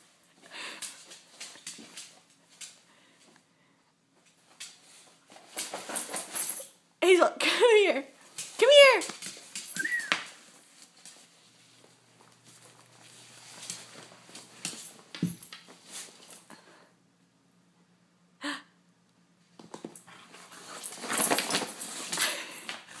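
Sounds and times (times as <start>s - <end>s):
fabric rustling and scuffing: 10.3s - 16.4s.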